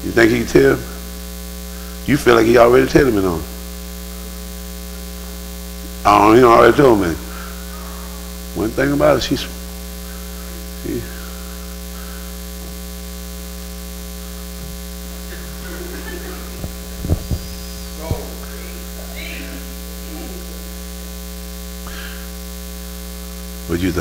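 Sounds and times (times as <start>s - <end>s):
electrical mains hum: 0.0s - 24.0s
faint voices: 7.2s - 8.7s, 15.2s - 20.7s
short low thumps: 16.3s - 18.6s.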